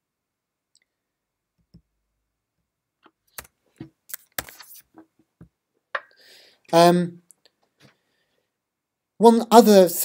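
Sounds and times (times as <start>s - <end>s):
computer mouse clicks: 3.0s - 4.8s.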